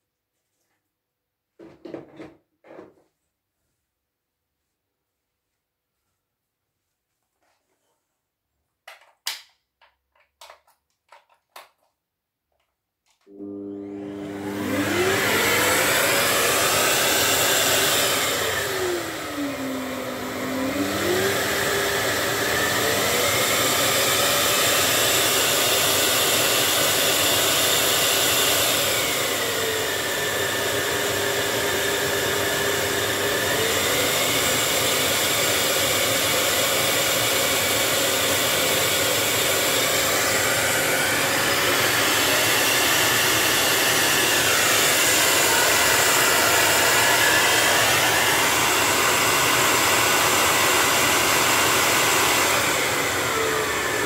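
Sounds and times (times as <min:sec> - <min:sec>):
vacuum cleaner running: 0:13.2 - 0:54.0.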